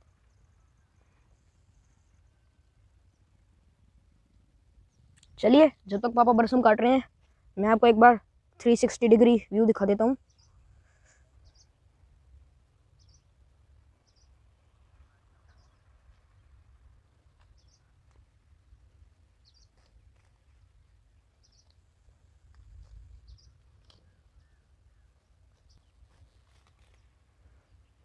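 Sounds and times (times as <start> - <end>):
bird chirping: 10.1 - 11.8, 13.0 - 13.4, 14.0 - 14.4, 17.1 - 17.9, 19.4 - 20.3, 21.2 - 21.8, 23.2 - 28.0.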